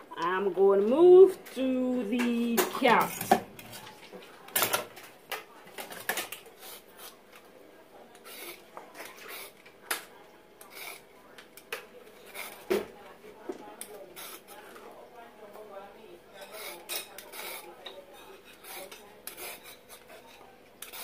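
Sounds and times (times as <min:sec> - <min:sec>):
peeler scraping carrot: 0:16.4 - 0:17.7, 0:18.4 - 0:21.0.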